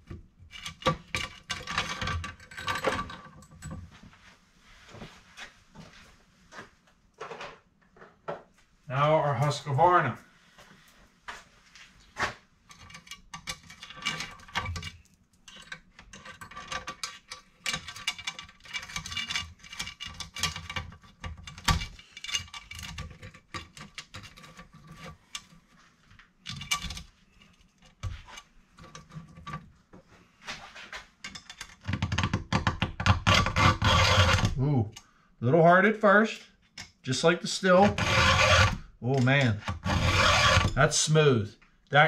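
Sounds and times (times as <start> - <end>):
saw chain clinking and rattling: 12.7 - 25.4, 37.7 - 40.9
hand file rasping on metal: 37.9 - 38.8, 39.8 - 40.8.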